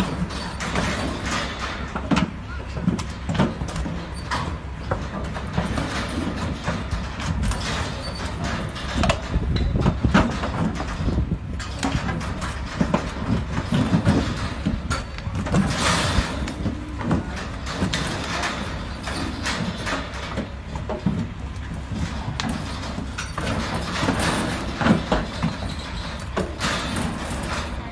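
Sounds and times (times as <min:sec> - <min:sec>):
hooves knocking on trailer floor: 0:00.0 - 0:27.9
trailer rattling: 0:00.0 - 0:27.9.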